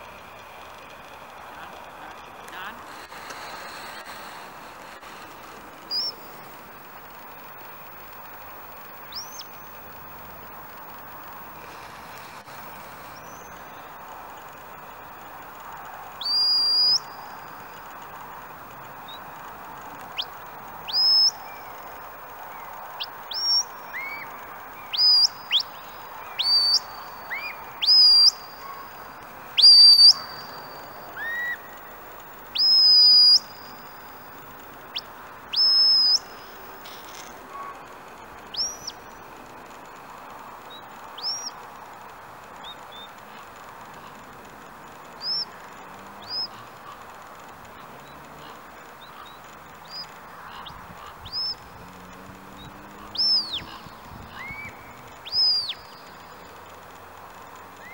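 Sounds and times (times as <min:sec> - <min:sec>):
shepherd's whistle commands: 0:16.3 - 0:17.0, 0:26.4 - 0:26.9, 0:27.8 - 0:28.8, 0:29.6 - 0:30.5, 0:32.6 - 0:33.4, 0:35.6 - 0:36.2.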